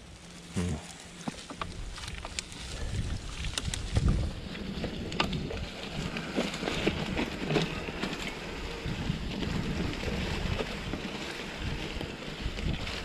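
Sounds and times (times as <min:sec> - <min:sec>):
bike tyres crunching leaves: 0:00.0 - 0:13.0
bike clicks and rattles: 0:01.0 - 0:13.0
wind on microphone: 0:01.7 - 0:13.0.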